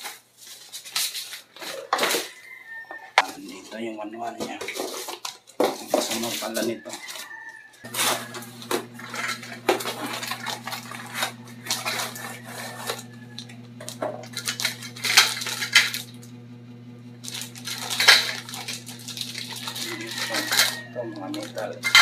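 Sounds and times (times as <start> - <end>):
steady low hum: 7.9 - 22.0
metal tubes clinking and rattling: 17.3 - 22.0.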